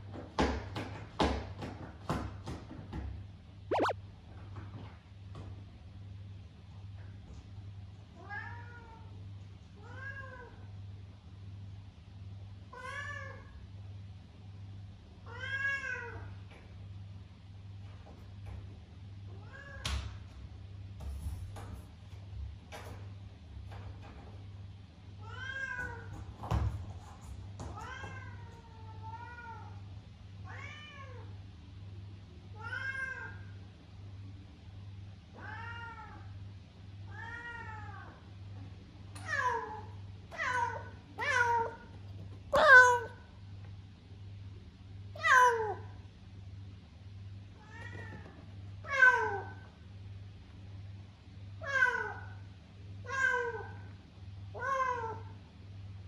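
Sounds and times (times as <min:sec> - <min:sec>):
cat meowing: 0:03.7 - 0:03.9, 0:42.6 - 0:43.2
faint low hum: 0:03.7 - 0:56.0.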